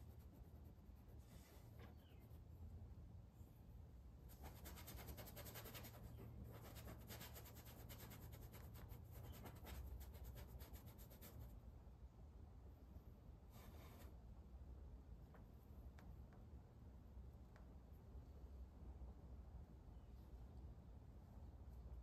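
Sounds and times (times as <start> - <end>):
paintbrush scratching on canvas: 0.0 - 2.5, 4.3 - 11.6.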